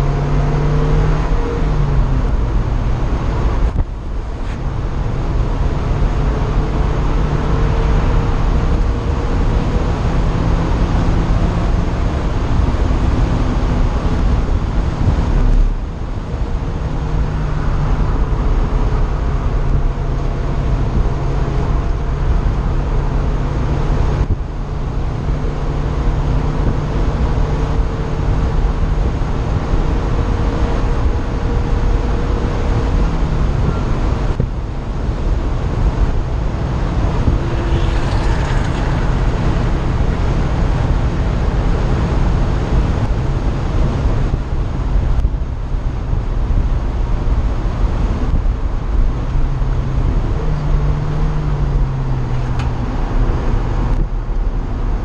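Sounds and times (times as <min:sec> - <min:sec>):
car engine at full throttle: 0:00.0 - 0:55.0
wind rushing: 0:33.3 - 0:45.7.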